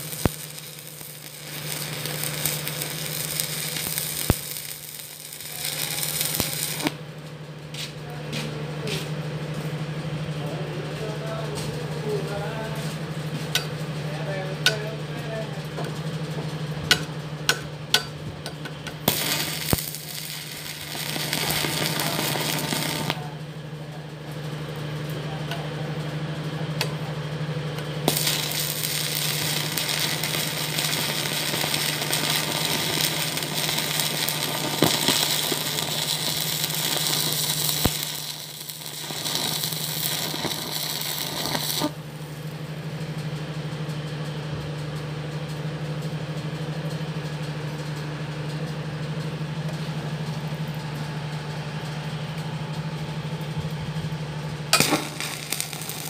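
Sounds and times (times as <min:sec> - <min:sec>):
welding arc crackling and sizzling: 0:00.0 - 0:07.0, 0:11.0 - 0:23.5, 0:27.8 - 0:43.2, 0:51.3 - 0:56.0
low hum: 0:09.5 - 0:24.1, 0:48.6 - 0:56.0.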